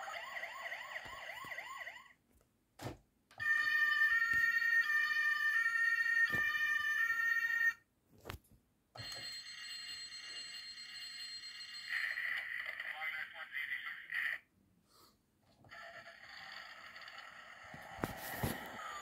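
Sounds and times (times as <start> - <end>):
toy two-tone siren: 0.0 - 2.1, 3.4 - 7.8, 15.7 - 17.7.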